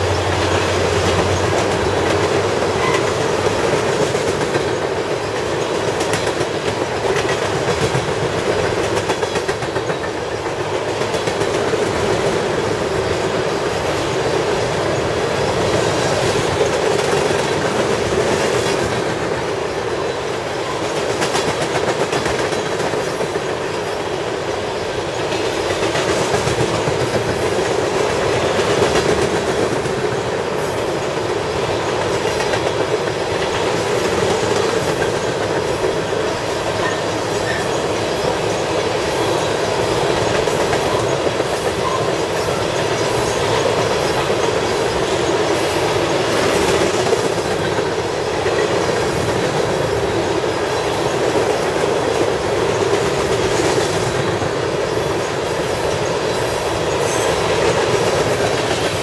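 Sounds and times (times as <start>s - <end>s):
wheels clacking over track joints: 0.0s - 24.0s, 25.1s - 59.0s
train wheels rumbling on rail: 0.0s - 59.0s.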